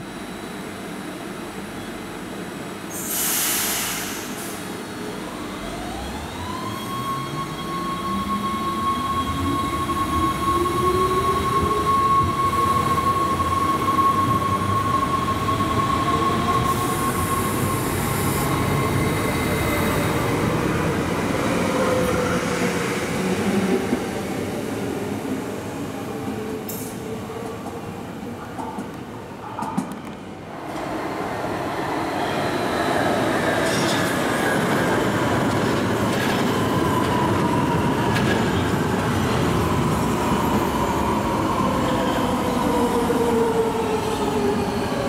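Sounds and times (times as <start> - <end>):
train rolling noise: 26.6 - 45.0.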